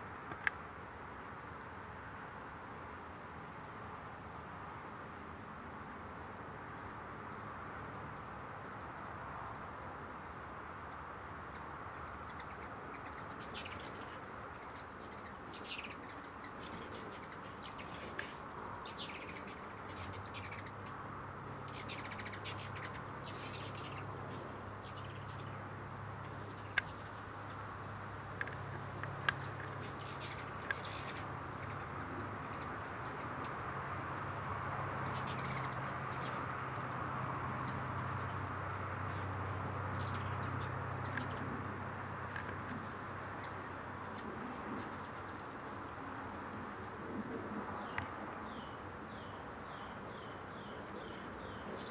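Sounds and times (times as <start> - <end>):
hummingbirds chipping and squeaking: 11.5 - 27.6, 28.3 - 45.9, 47.8 - 51.9.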